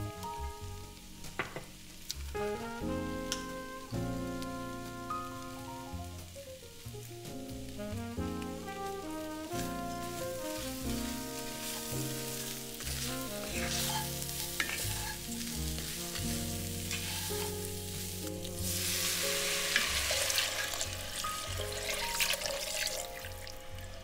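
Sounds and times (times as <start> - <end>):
background music: 0.0 - 24.0
vegetables sizzling in a pot: 0.3 - 24.0
broth pouring: 7.9 - 24.0
wooden spoon stirring and scraping: 9.4 - 23.0.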